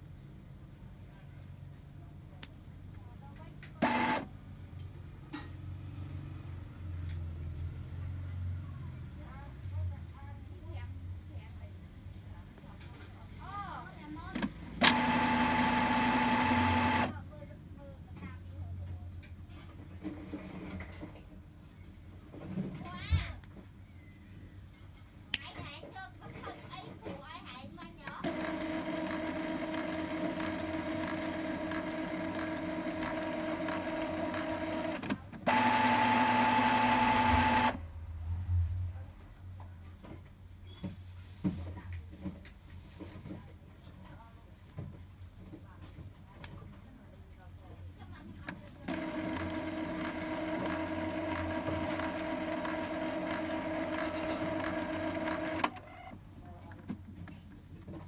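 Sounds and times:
printer motors whining: 0:03.8 - 0:04.3, 0:14.4 - 0:17.2, 0:28.2 - 0:37.8, 0:48.9 - 0:56.2.

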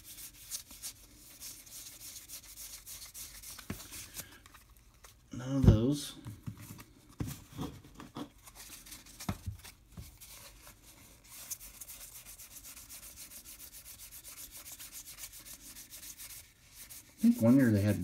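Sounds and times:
soft knocks and rubs of cards: 0:03.2 - 0:11.6.

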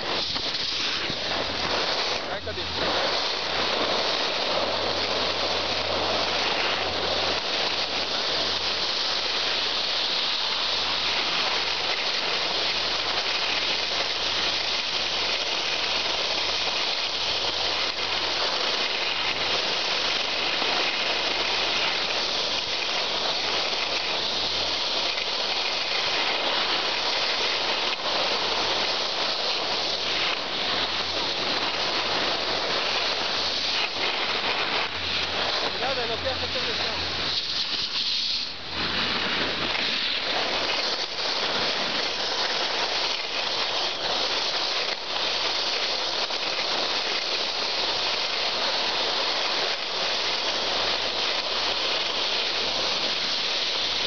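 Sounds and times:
wind rushing past microphone: 0:00.0 - 0:11.0
skis sliding over snow: 0:00.0 - 0:54.0.

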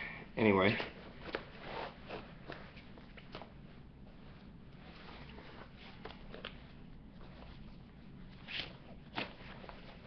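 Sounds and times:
low steady hum: 0:00.0 - 0:10.0
jacket fabric rustling: 0:00.6 - 0:10.0.

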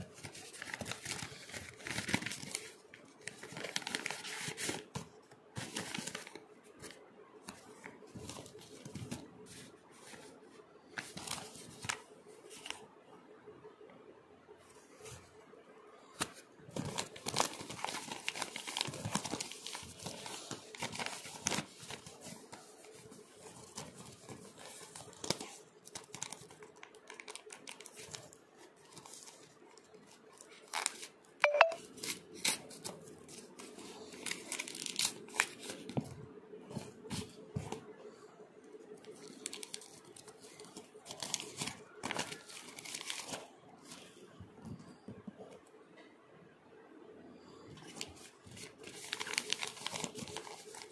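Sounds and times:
paper bags tearing and crinkling: 0:00.0 - 0:04.9, 0:16.8 - 0:22.4, 0:39.1 - 0:43.5, 0:48.5 - 0:50.9.

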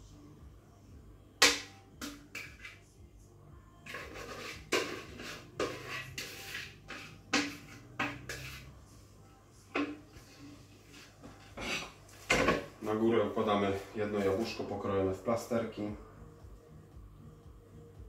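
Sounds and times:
spatula scraping mixing bowl: 0:03.9 - 0:08.8.

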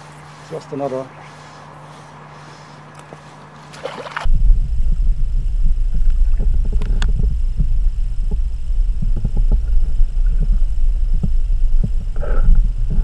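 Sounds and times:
underwater rumble of moving water: 0:03.5 - 0:13.0.

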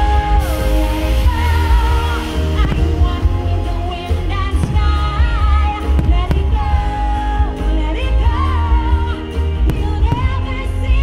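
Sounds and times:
show music with singing: 0:00.0 - 0:11.0
fireworks cracking: 0:04.5 - 0:07.0.

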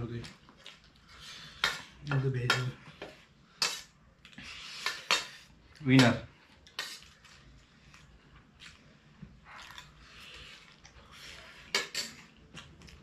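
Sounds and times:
cutlery clinking on steel plates: 0:11.7 - 0:12.3.

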